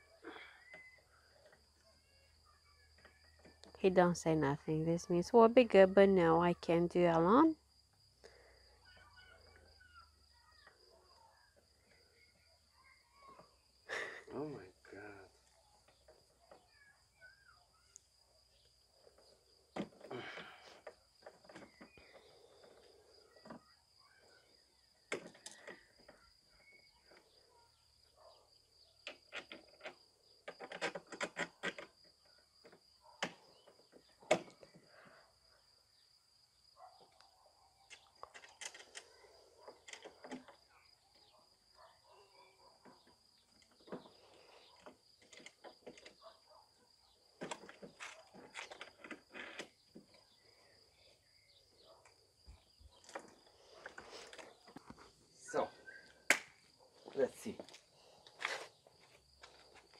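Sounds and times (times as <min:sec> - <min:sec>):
plastic parts clicking together: 0:37.9 - 0:39.2.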